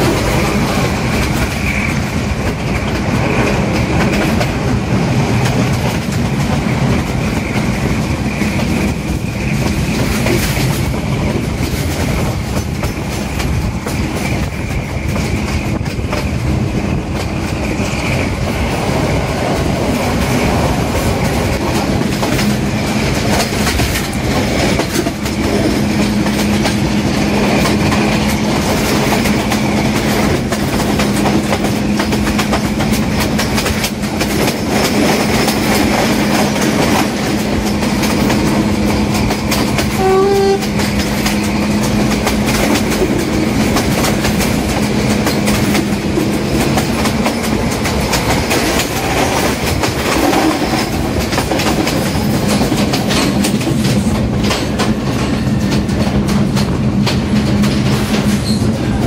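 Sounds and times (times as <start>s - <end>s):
diesel locomotive drone: 0.0s - 59.0s
train wheels clattering on rails: 0.0s - 59.0s
train horn toot: 39.9s - 41.0s.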